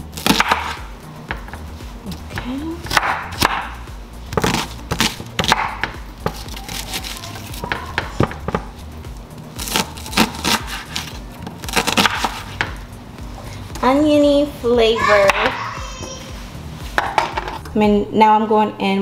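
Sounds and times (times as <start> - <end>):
background music: 0.0 - 19.0
knife chopping on wooden board: 0.2 - 1.6, 2.4 - 8.7, 11.7 - 12.8.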